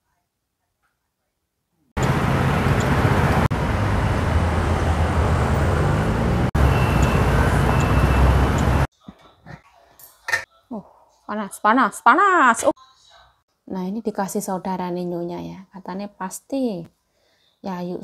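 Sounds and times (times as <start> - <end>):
street traffic: 2.0 - 8.9.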